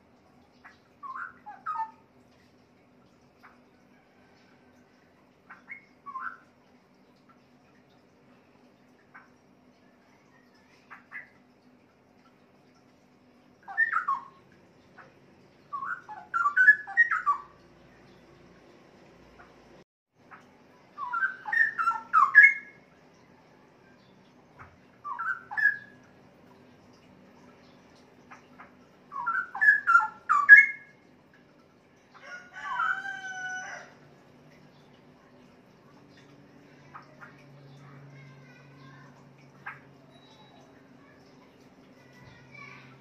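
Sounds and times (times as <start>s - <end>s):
bird singing whistled phrases: 13.7s - 14.3s, 15.7s - 17.5s, 21.0s - 22.8s, 25.0s - 26.0s, 29.1s - 30.9s, 40.1s - 40.7s.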